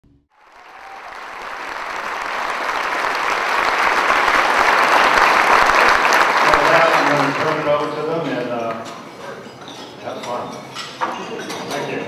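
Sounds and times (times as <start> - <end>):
audience applauding: 0.3 - 8.3.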